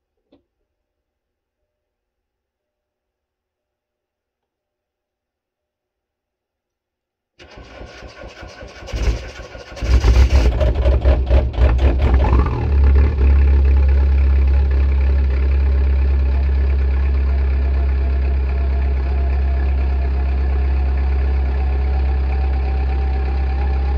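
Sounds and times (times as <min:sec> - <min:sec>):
diesel engine idling: 0:07.4 - 0:23.9.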